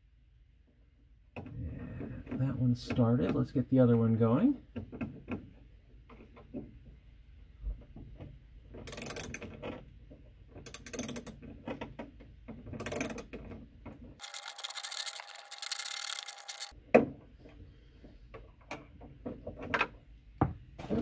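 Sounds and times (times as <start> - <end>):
hand ratchet clicking: 14.2 - 16.7.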